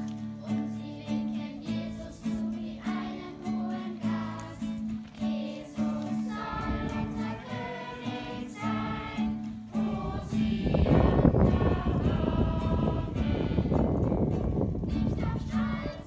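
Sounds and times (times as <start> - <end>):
congregation singing a hymn: 0.0 - 16.0
strummed acoustic guitar: 0.0 - 16.0
wind rumbling on microphone: 6.3 - 16.0.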